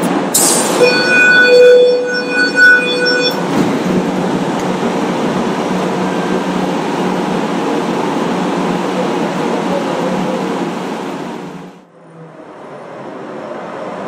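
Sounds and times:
tram rolling on rails: 3.4s - 14.0s.

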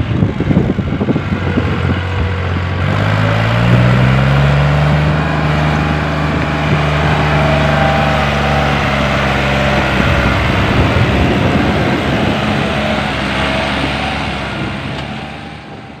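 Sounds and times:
tractor diesel engine under load: 0.0s - 16.0s.

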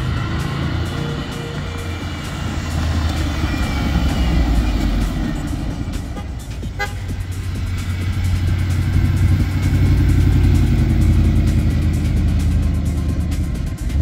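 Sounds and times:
background music: 0.0s - 14.0s
car engine running: 0.0s - 14.0s.

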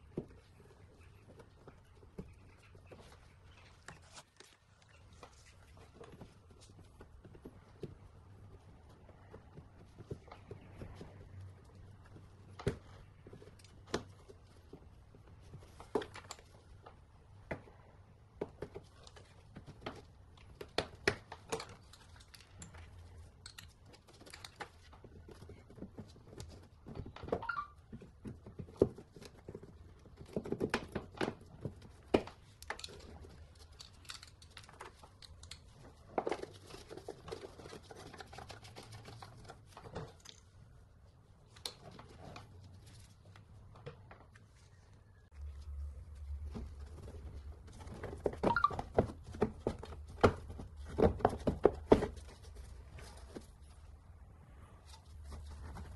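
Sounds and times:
plastic rustling and scraping: 21.2s - 44.8s.

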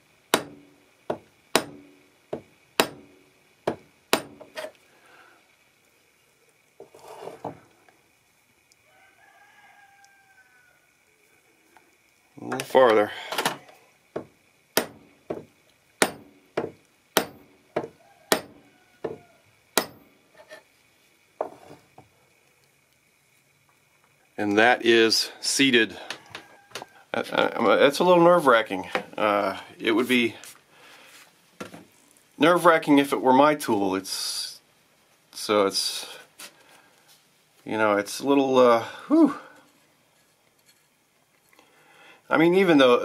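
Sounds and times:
hammer tapping metal tube: 0.3s - 3.1s, 14.2s - 18.6s.

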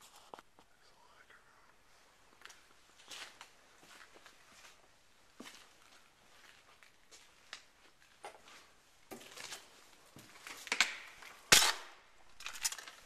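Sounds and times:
footsteps crunching over debris: 2.3s - 11.5s
loud sharp crack: 10.8s - 12.0s.

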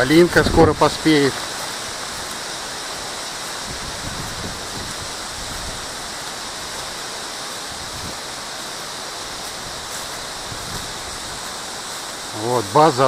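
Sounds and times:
wind buffeting microphone: 0.0s - 1.1s, 3.4s - 6.7s, 7.7s - 8.4s, 9.5s - 11.9s
storm wind through leaves: 0.0s - 13.0s.

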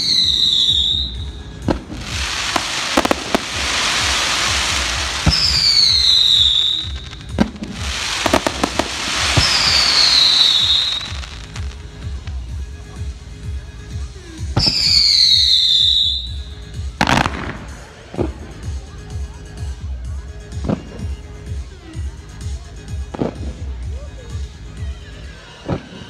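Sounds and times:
fireworks whistles: 0.0s - 12.4s, 14.6s - 18.1s
fireworks bangs: 0.0s - 12.5s, 17.0s - 18.8s
fireworks crackling: 0.0s - 24.6s.

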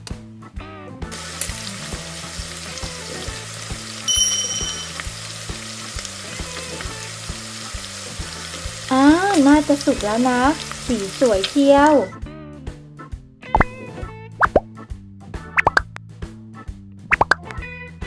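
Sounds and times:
quiet background music: 0.0s - 15.9s
hot oil sizzling: 1.1s - 12.2s
brief high tone: 4.1s - 5.1s.

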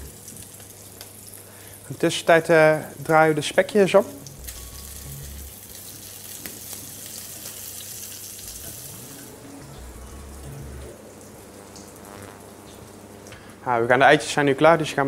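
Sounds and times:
pork sizzling in frying pan: 0.0s - 2.0s, 4.2s - 9.4s.

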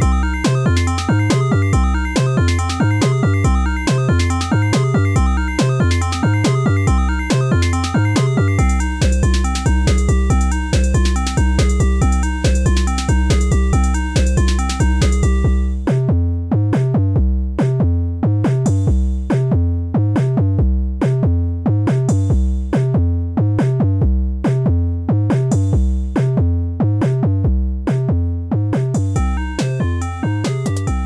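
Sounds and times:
drum-machine beat: 0.0s - 16.1s, 28.8s - 31.0s
synthesizer chords and bass: 0.0s - 17.0s, 28.7s - 31.0s.

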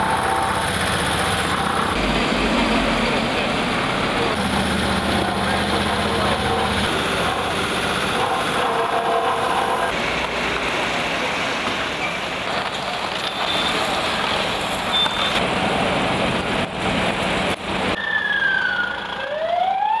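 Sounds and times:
trucks and traffic passing: 0.0s - 20.0s
emergency siren wailing: 17.9s - 20.0s.

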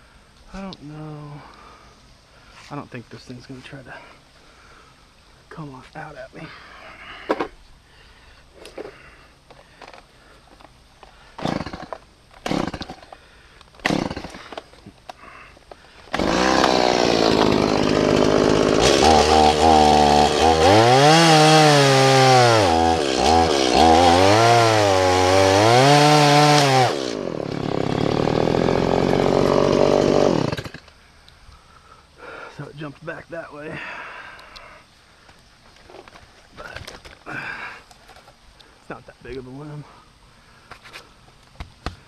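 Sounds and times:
chainsaw revving and idling: 11.4s - 13.2s, 13.8s - 14.7s, 16.1s - 30.9s.

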